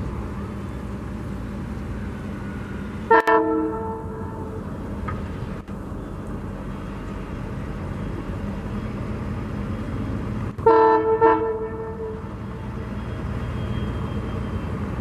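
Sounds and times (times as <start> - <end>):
diesel locomotive engine rumbling: 0.0 - 15.0
train horn blasts: 3.1 - 4.6, 10.6 - 12.4.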